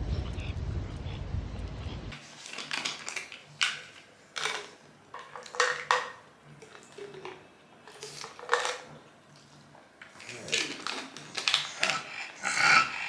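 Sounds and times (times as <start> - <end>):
pills rattling in bottle: 2.4 - 8.9, 10.1 - 12.0.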